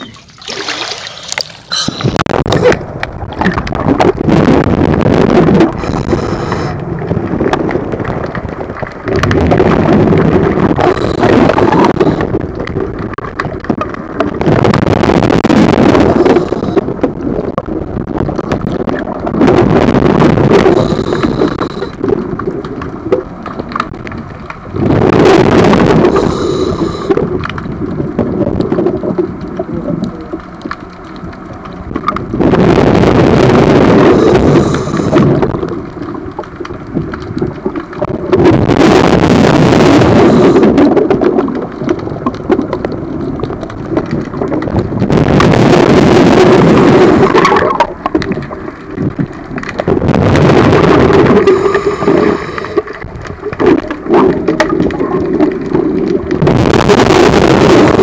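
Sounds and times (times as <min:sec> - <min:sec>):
exhaled breath bubbling underwater: 0:00.0 - 0:04.6, 0:05.2 - 0:07.3, 0:15.5 - 0:17.3, 0:18.2 - 0:22.6, 0:24.7 - 0:27.4, 0:32.3 - 0:36.2, 0:37.6 - 0:41.7, 0:44.0 - 0:49.2, 0:49.8 - 0:58.0
diver breathing: 0:01.6 - 0:02.3, 0:05.8 - 0:06.8, 0:26.1 - 0:27.2, 0:34.1 - 0:35.3, 0:51.4 - 0:52.9.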